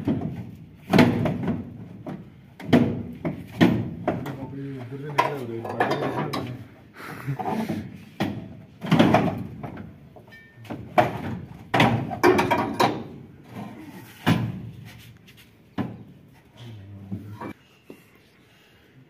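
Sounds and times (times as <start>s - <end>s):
metal knocks and clanks: 0.0s - 6.6s, 7.8s - 14.8s.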